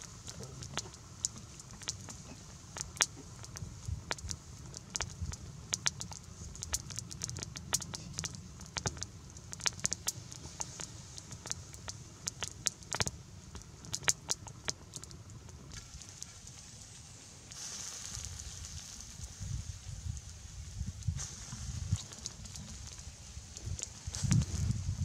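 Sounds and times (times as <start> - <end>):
campfire crackling and popping: 0.0 - 25.0
low fire rumble: 0.0 - 25.0.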